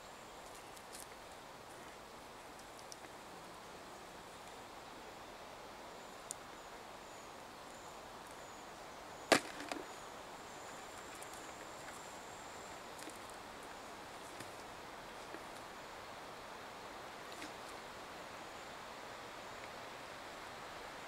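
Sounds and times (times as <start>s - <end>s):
faint high-pitched whine: 0.0s - 21.0s
small ticks: 0.4s - 1.2s, 2.5s - 3.2s
sharp knock of trap hoops: 9.3s - 9.8s.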